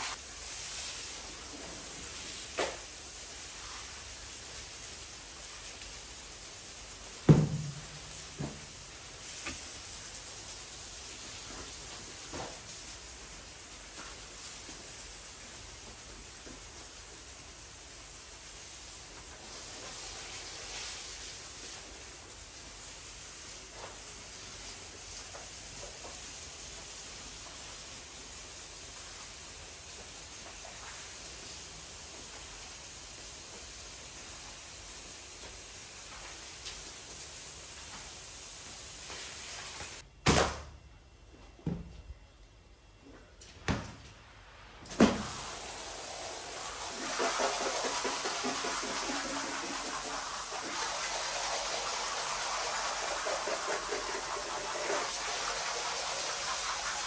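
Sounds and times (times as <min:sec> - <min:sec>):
water hissing across tile floor: 0:00.0 - 0:40.0, 0:44.8 - 0:57.0
pressure washer spraying: 0:45.0 - 0:57.0.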